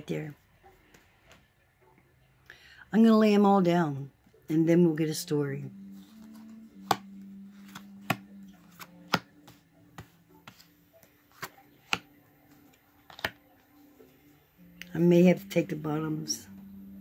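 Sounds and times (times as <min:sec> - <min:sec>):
cards snapping onto table: 0:13.1 - 0:13.4.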